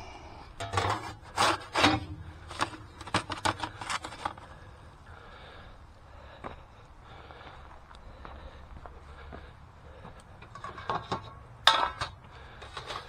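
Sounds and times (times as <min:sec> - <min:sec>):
metal peel scraping oven floor: 0:00.6 - 0:04.4.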